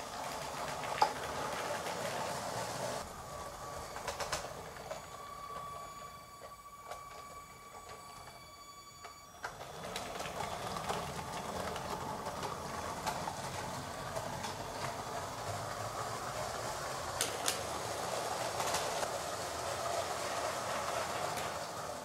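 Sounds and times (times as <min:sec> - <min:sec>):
faint steady whine: 0:00.0 - 0:22.0
toy train motors rattling: 0:00.0 - 0:22.0
wheels clicking over rail joints: 0:00.0 - 0:22.0.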